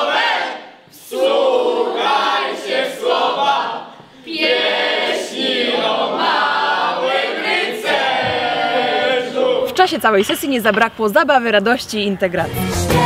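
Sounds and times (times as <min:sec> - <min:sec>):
group of teenagers singing: 0:00.0 - 0:10.4.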